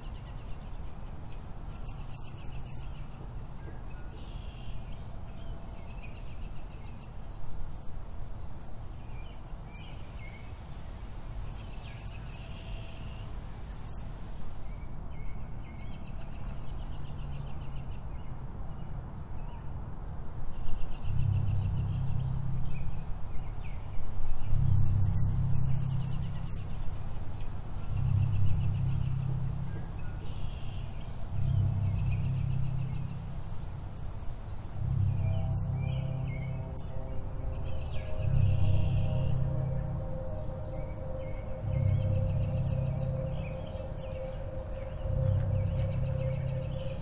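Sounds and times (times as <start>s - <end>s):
small birds chirping: 20.2s - 47.0s
low rumble: 21.0s - 47.0s.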